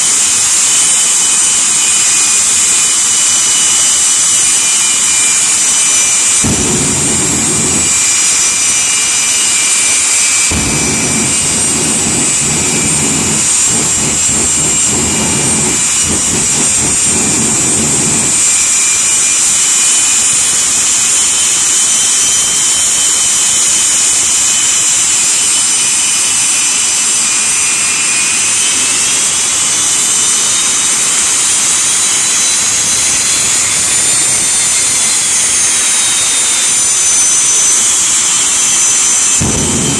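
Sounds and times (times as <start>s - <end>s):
jet engines whining: 0.0s - 39.9s
deep engine rumble: 6.4s - 18.7s, 38.8s - 39.9s.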